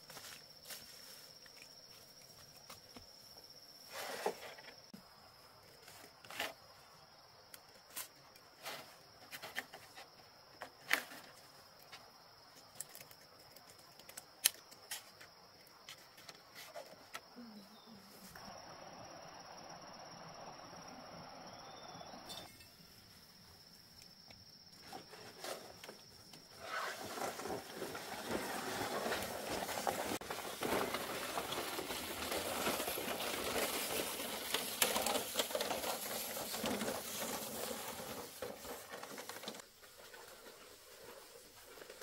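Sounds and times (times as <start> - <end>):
dense rustling and crackling: 24.8 - 42.0.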